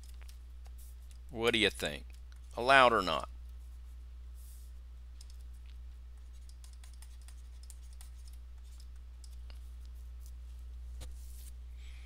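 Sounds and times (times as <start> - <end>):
low electrical hum: 0.0 - 12.0
stylus clicking on tablet: 6.3 - 10.0.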